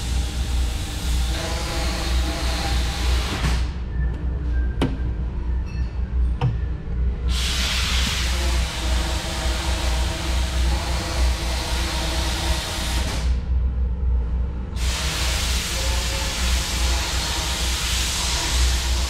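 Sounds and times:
low machine hum: 0.0s - 19.0s
loud rushing hiss: 7.3s - 13.4s, 14.8s - 19.0s.

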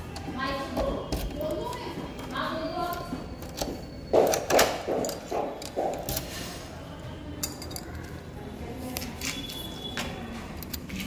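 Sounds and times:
key clinking in door lock: 7.4s - 8.1s.

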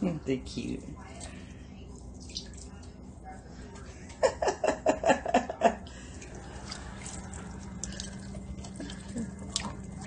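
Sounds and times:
steady low hum: 0.0s - 10.0s
faint water splashing: 0.6s - 4.2s, 5.8s - 10.0s.

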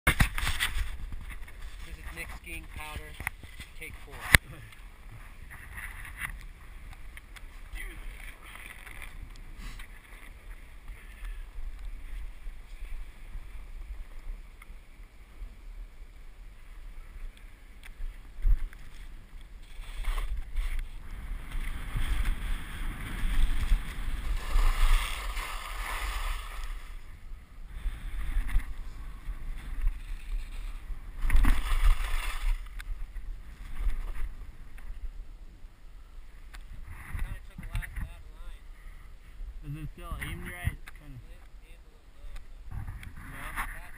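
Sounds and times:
wind buffeting microphone: 16.0s - 35.3s, 42.6s - 43.9s
skis swishing over snow: 18.9s - 27.0s, 28.2s - 32.7s.

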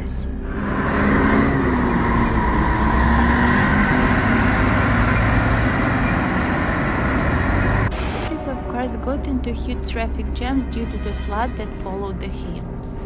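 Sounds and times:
diesel engine running: 0.0s - 12.4s
steady rushing noise: 6.3s - 8.4s.

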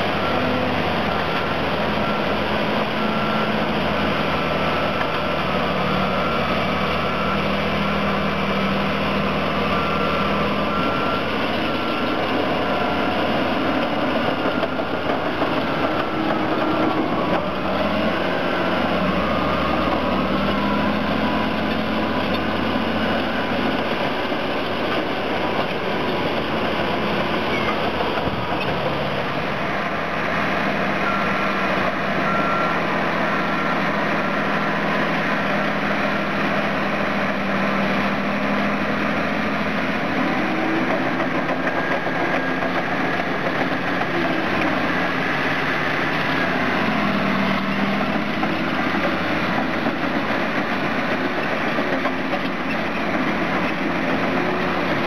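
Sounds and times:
bulldozer diesel engine under load: 0.0s - 55.0s
reversing beeper: 0.0s - 55.0s.

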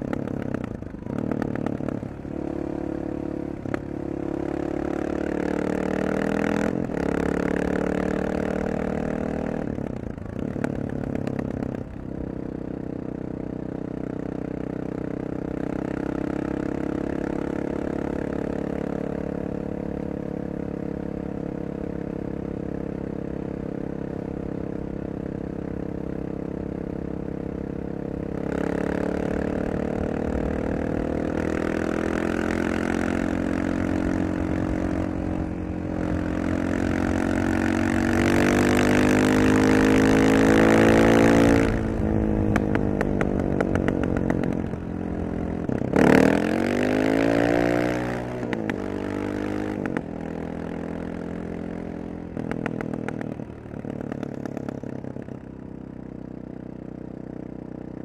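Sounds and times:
motorcycle engine revving: 0.0s - 58.0s
exhaust crackling pops: 42.5s - 44.7s, 52.4s - 54.9s.

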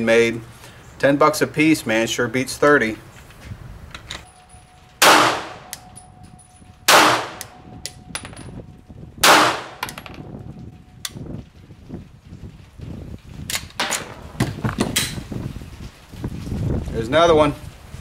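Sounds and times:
pistol shots echoing: 5.0s - 5.9s, 6.9s - 7.6s, 9.2s - 10.0s.

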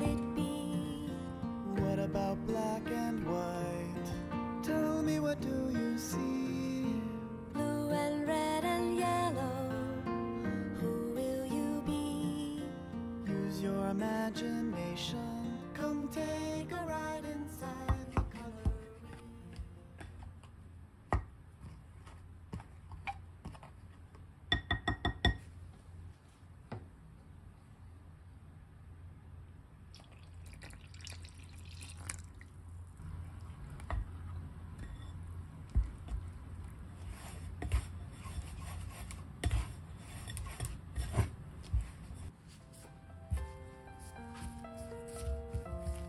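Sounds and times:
scraper stirring flour: 35.8s - 42.3s.

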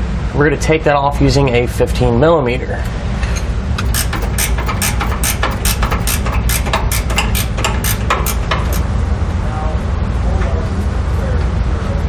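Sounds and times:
steady low hum: 0.0s - 12.0s
hand ratchet clicking: 3.8s - 8.9s.

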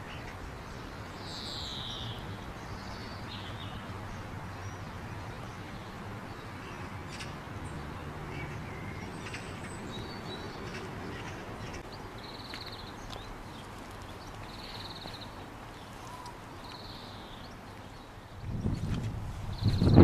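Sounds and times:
birds calling: 0.0s - 20.0s
wind rushing: 18.4s - 20.0s.

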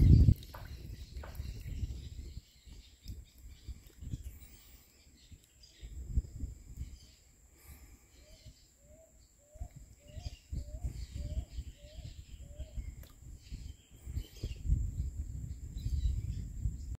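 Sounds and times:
birds chirping: 0.0s - 16.9s.

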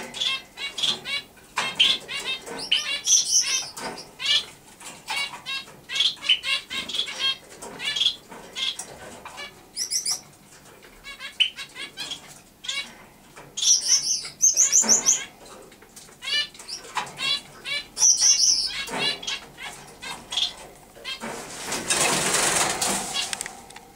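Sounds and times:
sparrow singing: 0.1s - 4.4s, 9.8s - 10.2s, 13.6s - 15.4s, 16.2s - 21.2s.

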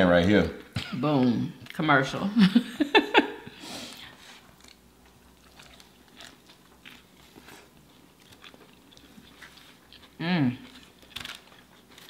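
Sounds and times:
people chewing: 3.5s - 12.0s.

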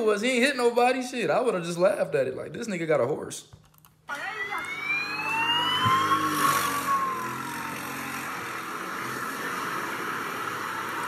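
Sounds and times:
police siren wailing: 4.1s - 8.8s.

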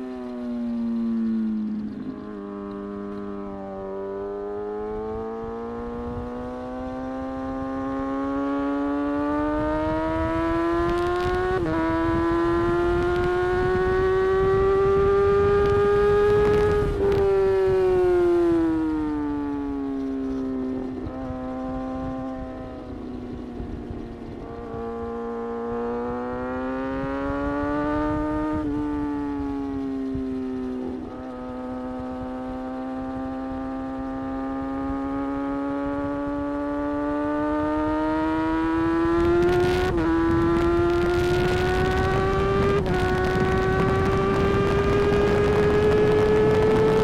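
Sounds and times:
motorcycle engine accelerating: 0.0s - 47.0s
wind rush: 9.4s - 19.7s, 20.8s - 47.0s.

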